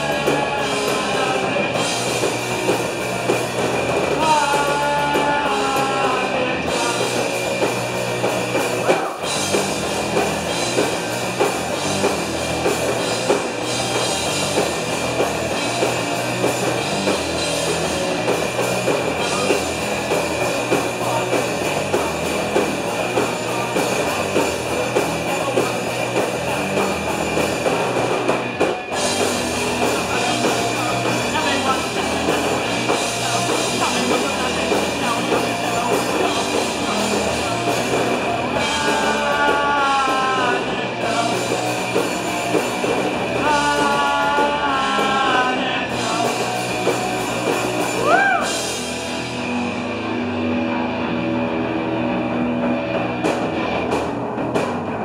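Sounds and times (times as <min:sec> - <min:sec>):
punk band playing live: 0:00.0 - 0:55.0.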